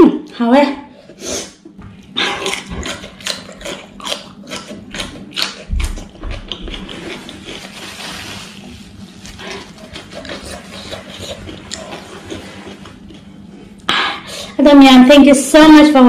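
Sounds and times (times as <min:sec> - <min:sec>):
cucumber crunching: 0:02.0 - 0:13.8
chewing: 0:02.0 - 0:13.9.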